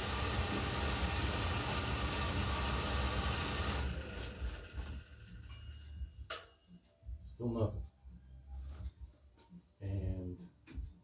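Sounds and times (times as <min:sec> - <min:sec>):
blower fan whirring: 0:00.0 - 0:06.4.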